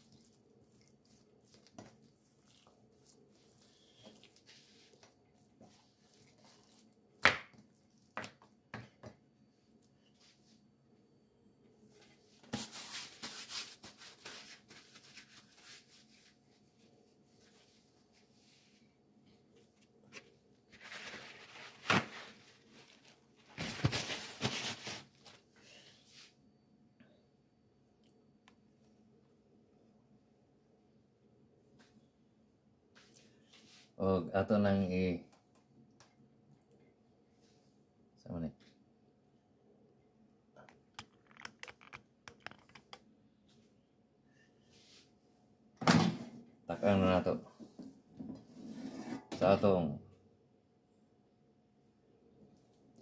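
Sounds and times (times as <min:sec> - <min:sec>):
hands rubbing raw meat: 0:00.0 - 0:08.6
rustling of handled objects: 0:19.4 - 0:25.5.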